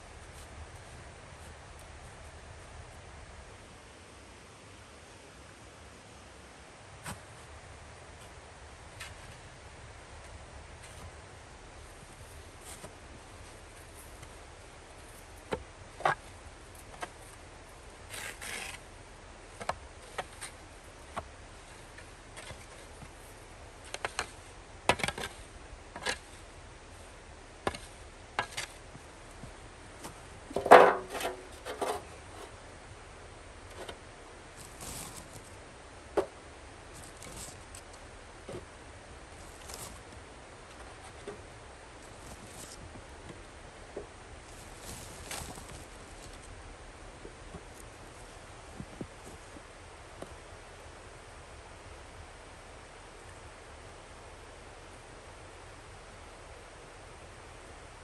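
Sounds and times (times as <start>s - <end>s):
spade scraping snow: 18.1s - 18.8s.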